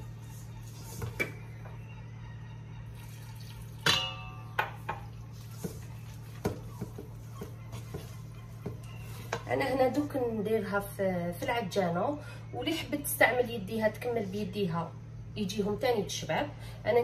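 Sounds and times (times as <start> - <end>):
metal bowl ringing: 3.7 - 5.0.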